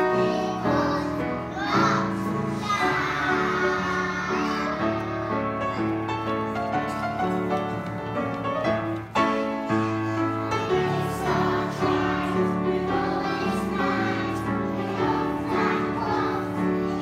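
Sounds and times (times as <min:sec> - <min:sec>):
choir singing held notes: 0:00.0 - 0:05.9, 0:09.6 - 0:17.0
piano accompaniment: 0:00.0 - 0:17.0.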